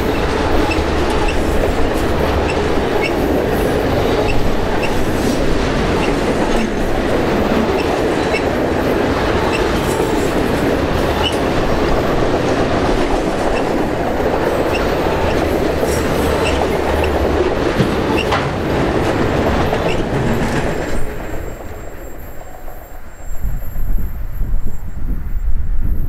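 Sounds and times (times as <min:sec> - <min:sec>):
wheel squeaks: 0:00.0 - 0:03.3, 0:04.2 - 0:05.1, 0:07.6 - 0:08.6, 0:14.4 - 0:17.2
train wheels rumbling on rail: 0:00.0 - 0:26.0.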